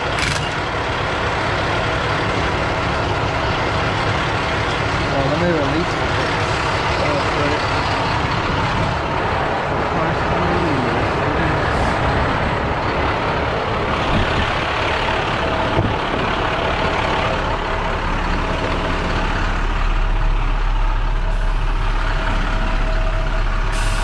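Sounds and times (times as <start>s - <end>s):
truck engine idling: 0.0s - 24.0s
compressed air hissing: 23.7s - 24.0s.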